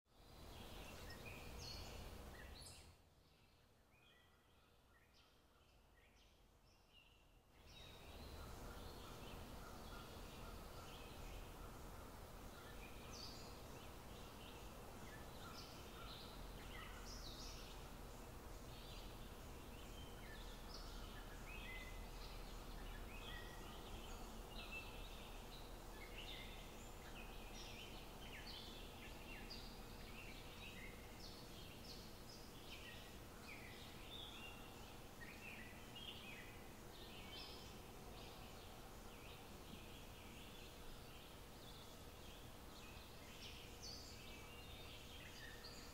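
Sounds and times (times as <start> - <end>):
low background hiss: 0.1 - 45.9
small birds chirping: 0.1 - 45.9.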